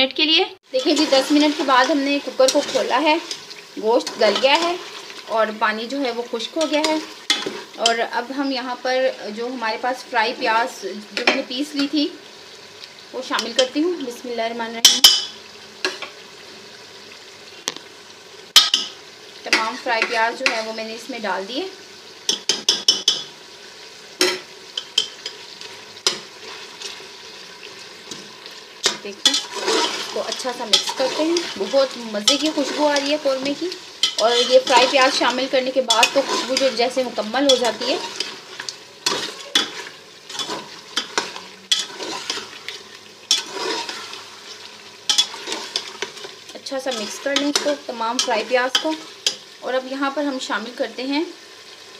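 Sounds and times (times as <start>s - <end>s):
food sizzling in a pot: 0.0s - 51.9s
spoon scraping metal pot: 0.8s - 5.1s, 28.8s - 49.4s
spoon knocking against pot: 22.3s - 23.3s.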